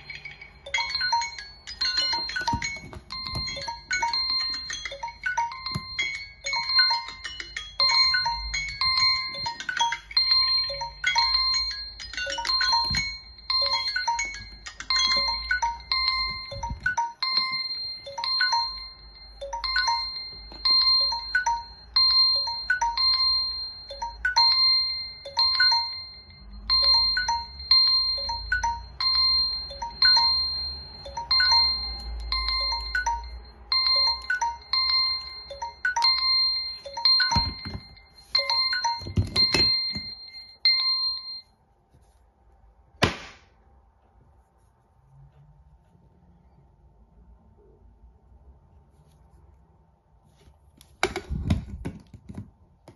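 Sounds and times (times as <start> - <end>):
phone alarm chime: 0.0 - 41.6
phone being handled: 36.8 - 40.2.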